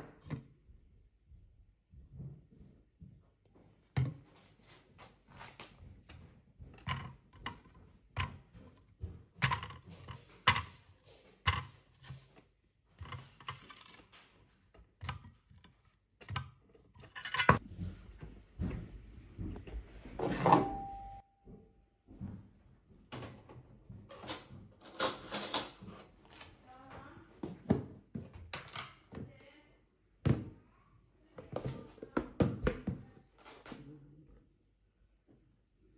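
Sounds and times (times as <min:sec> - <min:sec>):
ceramic bowl clinking on countertop: 0:20.2 - 0:21.2.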